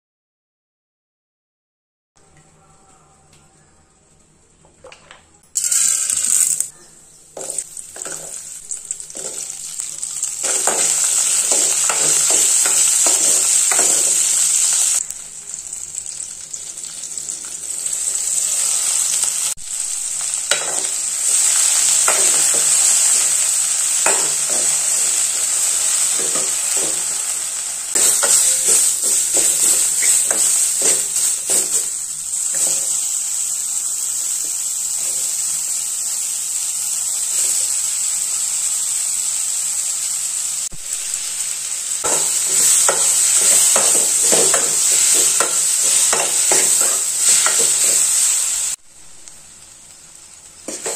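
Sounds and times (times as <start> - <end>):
oil sizzling in a metal pan: 4.8 - 50.9
steel ladle scraping a pan: 28.0 - 33.0.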